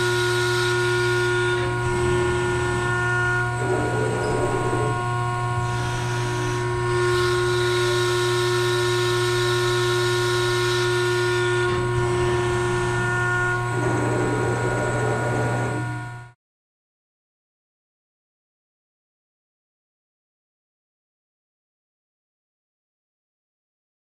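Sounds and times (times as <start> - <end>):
high whining tones: 0.0 - 16.4
hydraulic pump hum: 0.0 - 16.4.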